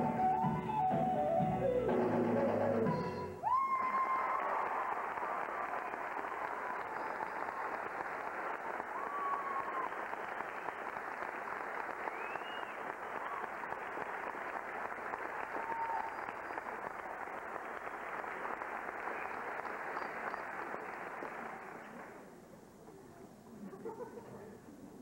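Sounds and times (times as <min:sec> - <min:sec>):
people cheering: 0:03.4 - 0:22.0
audience applauding: 0:03.4 - 0:22.3.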